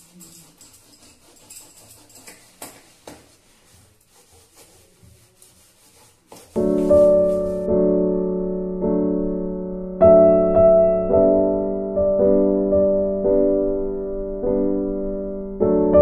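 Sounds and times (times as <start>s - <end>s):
piano music with held chords: 6.6s - 16.0s.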